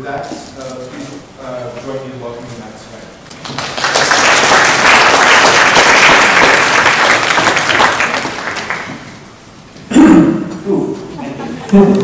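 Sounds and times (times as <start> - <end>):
audience applauding: 3.3 - 9.2.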